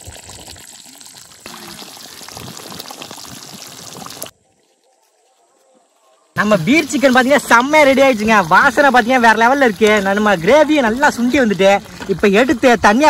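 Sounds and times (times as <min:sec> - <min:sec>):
gravy simmering and bubbling: 0:00.0 - 0:04.4, 0:06.4 - 0:13.0
wood fire crackling: 0:06.4 - 0:13.0.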